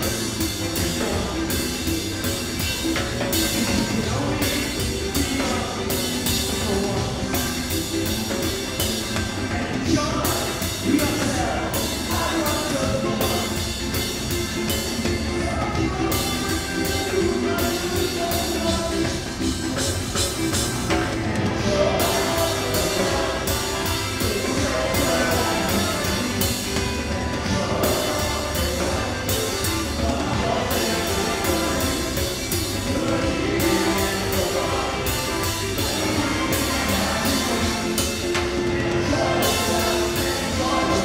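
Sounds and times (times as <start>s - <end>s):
drum kit with cymbals: 0.0s - 41.0s
live band playing: 0.0s - 41.0s
person singing: 0.0s - 41.0s.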